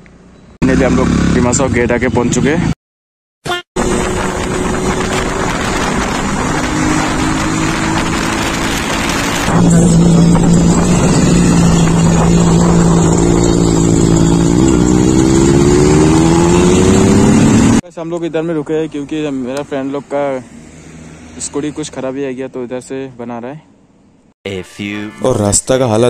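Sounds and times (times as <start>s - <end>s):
road and wind noise: 0.0s - 2.8s, 3.8s - 24.3s
motorcycle engine running: 0.1s - 2.0s, 3.8s - 17.8s.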